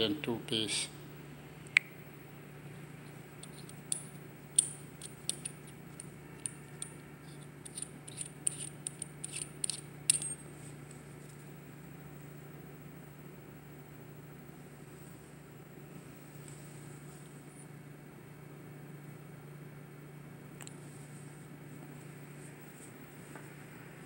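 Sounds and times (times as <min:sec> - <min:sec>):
light metallic clicks of metal parts: 0:03.4 - 0:10.4.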